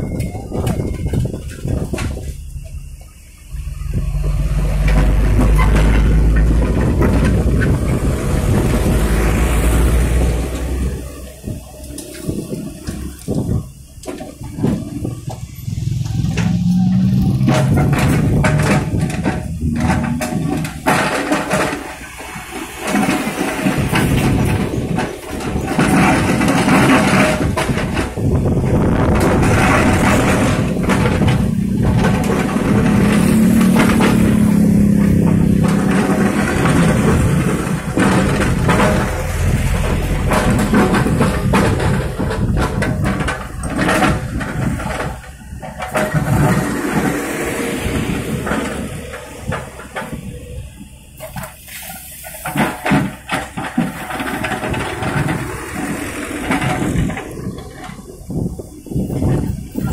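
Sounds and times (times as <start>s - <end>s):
excavator diesel engine under load: 0.0s - 59.9s
rock and grit clattering: 0.0s - 59.9s
bucket scraping soil and stones: 14.3s - 50.2s, 51.2s - 59.9s.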